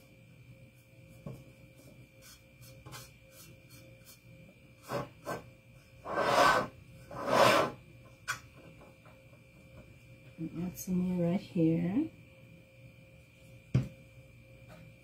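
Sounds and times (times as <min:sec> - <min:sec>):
baking pan rubbing on mat: 0:06.0 - 0:07.8.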